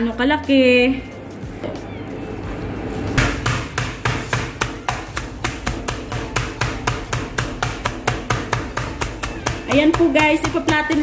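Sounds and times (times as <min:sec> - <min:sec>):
meat mallet pounding: 0:03.2 - 0:11.0.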